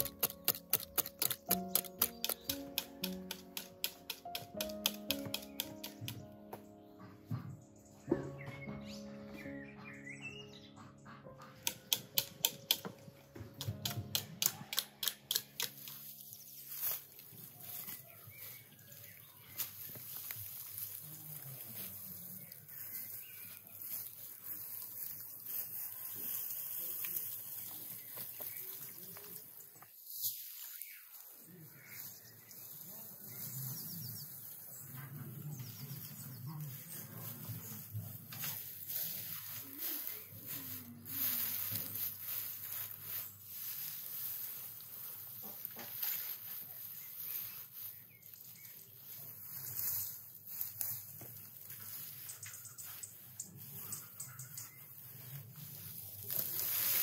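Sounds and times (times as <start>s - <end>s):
dry straw rustling: 0.0s - 6.9s, 11.6s - 57.0s.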